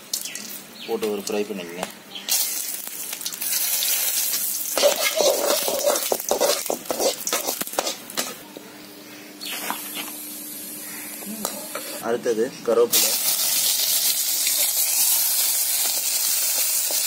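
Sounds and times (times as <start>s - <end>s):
spices sizzling in hot oil: 2.2s - 8.4s, 12.9s - 17.0s
metal spatula scraping a pan: 4.8s - 8.0s.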